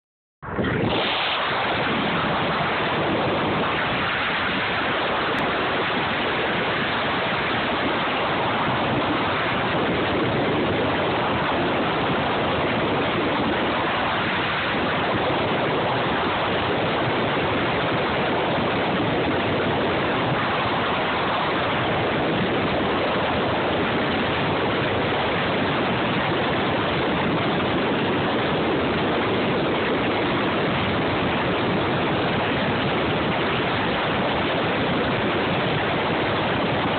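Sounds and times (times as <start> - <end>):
wind and road noise: 0.4 - 36.9.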